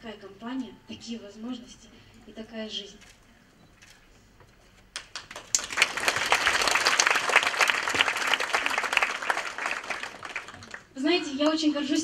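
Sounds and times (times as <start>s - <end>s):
audience clapping: 4.9s - 11.6s.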